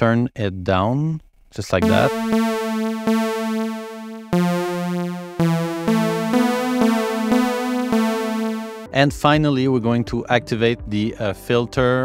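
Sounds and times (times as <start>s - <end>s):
buzzy synthesizer notes: 1.8s - 8.9s.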